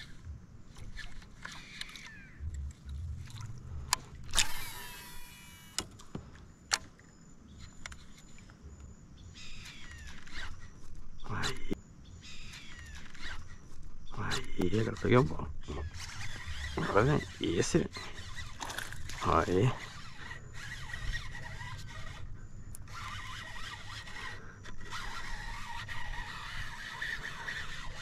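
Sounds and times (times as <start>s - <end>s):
fishing reel whirr: 0.0s - 3.0s, 3.6s - 5.8s, 9.4s - 10.9s, 11.6s - 13.6s, 14.3s - 28.0s
fishing tackle clicks: 3.8s - 6.1s
birds chirping: 6.1s - 28.0s.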